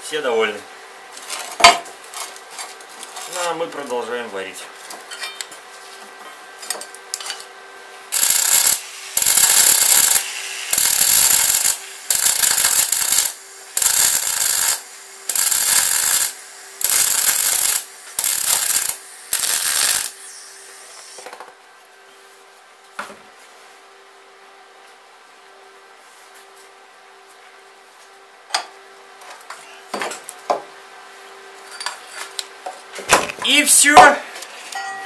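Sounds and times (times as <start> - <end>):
welding arc crackling: 8.1 - 20.3.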